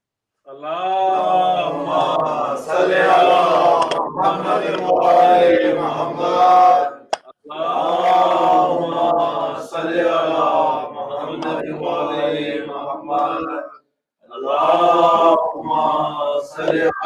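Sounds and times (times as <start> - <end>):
man chanting: 0.5 - 17.0.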